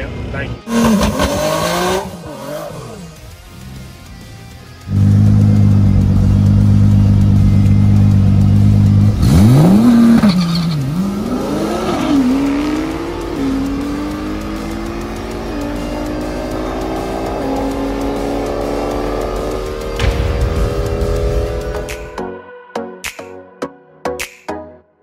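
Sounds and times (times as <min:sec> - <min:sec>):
race car engine revving and launching: 0:00.7 - 0:03.4, 0:08.9 - 0:22.2.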